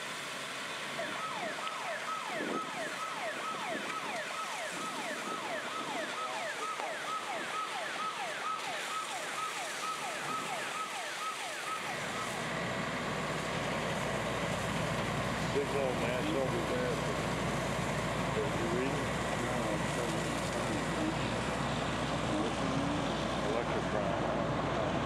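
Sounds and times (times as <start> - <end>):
siren in fast yelp: 1.0 - 12.4.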